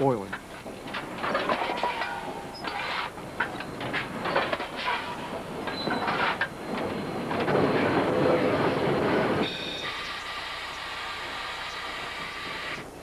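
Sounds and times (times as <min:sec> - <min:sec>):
steam locomotive running: 0:00.0 - 0:13.0
shovel scraping in coal: 0:01.2 - 0:03.2.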